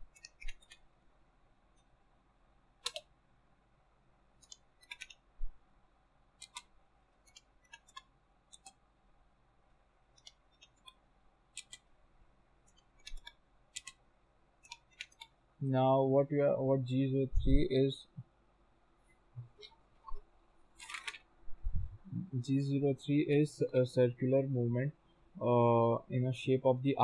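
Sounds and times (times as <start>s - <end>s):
keyboard typing clicks: 2.8s - 3.1s, 4.4s - 5.2s, 6.4s - 6.7s, 7.3s - 8.8s, 12.7s - 14.0s, 14.6s - 15.3s.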